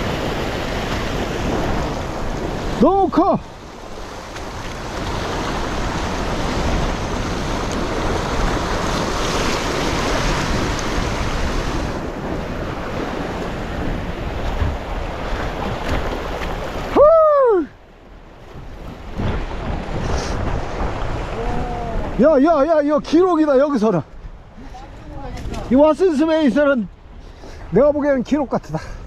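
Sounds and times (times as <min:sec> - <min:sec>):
waves washing over rocks: 0:00.0 - 0:28.7
wind on microphone: 0:03.4 - 0:22.3
person exclaiming: 0:17.0 - 0:17.8, 0:21.4 - 0:22.1.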